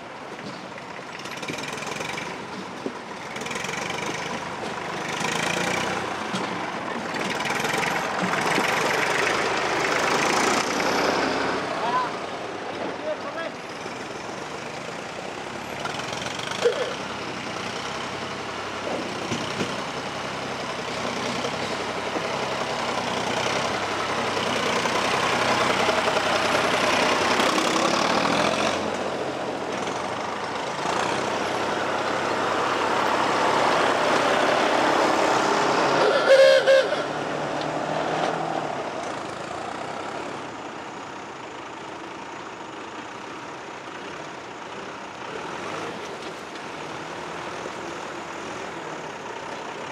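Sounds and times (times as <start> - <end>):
tractor engines running: 0.0 - 49.9.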